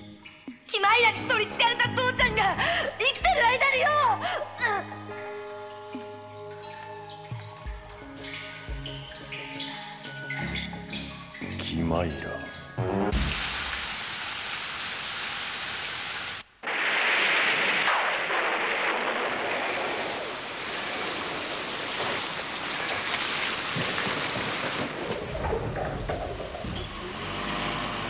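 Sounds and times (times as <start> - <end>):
heavy rain pouring: 13.1 - 28.0.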